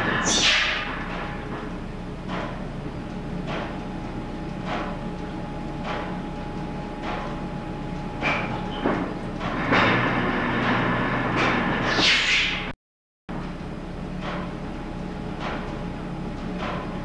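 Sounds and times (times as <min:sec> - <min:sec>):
repeating machine knock: 0:00.0 - 0:10.8
belt-driven machinery humming: 0:00.0 - 0:12.0, 0:13.3 - 0:17.0.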